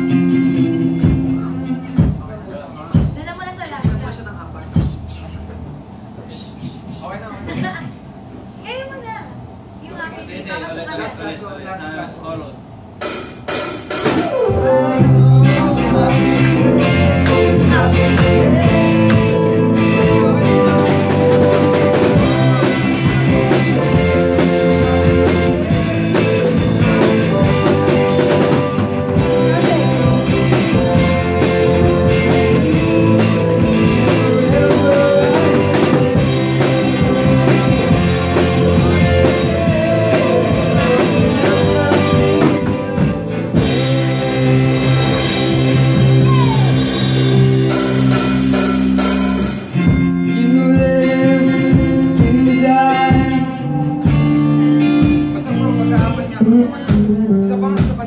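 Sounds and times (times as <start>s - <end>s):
electric guitar: 0.0s - 2.2s, 13.9s - 58.0s
drum kit with cymbals: 0.0s - 9.2s, 12.7s - 51.0s, 51.6s - 58.0s
person singing: 14.1s - 47.1s, 50.2s - 57.6s.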